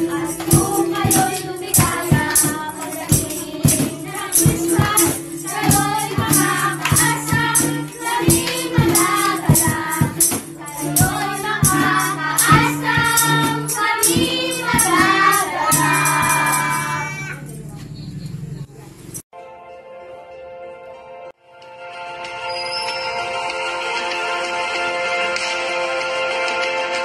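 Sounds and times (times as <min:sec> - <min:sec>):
musical accompaniment: 0:00.0 - 0:17.1, 0:19.3 - 0:27.0
tambourine beats: 0:00.0 - 0:17.1
children singing: 0:00.0 - 0:17.4.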